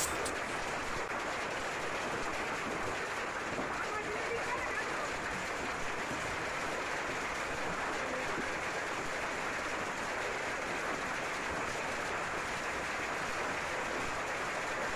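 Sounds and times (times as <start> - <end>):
hail and rain falling on foliage: 2.3 - 12.1.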